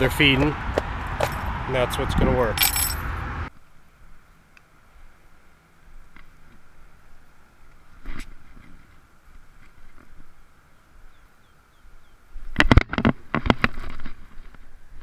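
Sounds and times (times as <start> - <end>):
bird chirps: 10.7 - 12.2.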